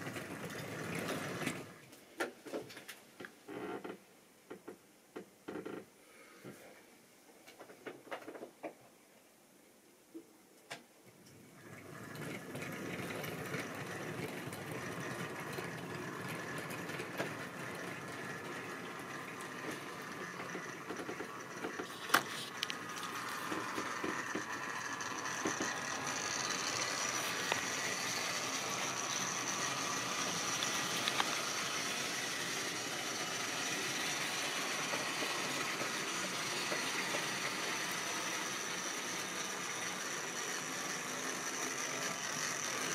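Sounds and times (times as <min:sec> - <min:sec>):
model train motor whirring: 0:00.0 - 0:01.8, 0:11.6 - 0:42.9
wheels clicking over rail joints: 0:00.0 - 0:01.8, 0:11.6 - 0:42.9
wheels rumbling on track: 0:11.6 - 0:42.9.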